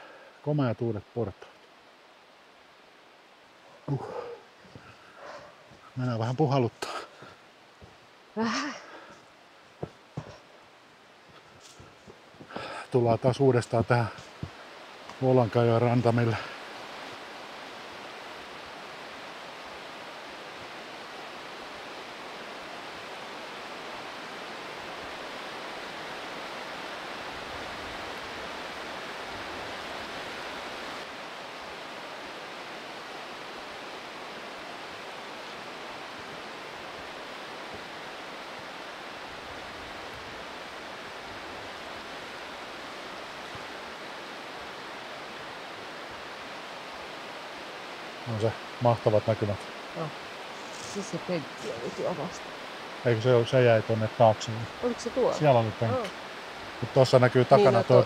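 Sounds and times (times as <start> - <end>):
river rapids rushing: 49.6 - 53.0, 54.7 - 58.0.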